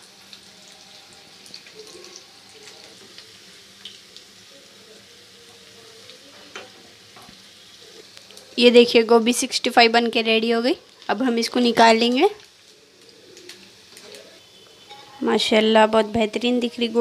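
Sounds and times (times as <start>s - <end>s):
batter sizzling in hot oil: 0.0s - 17.0s.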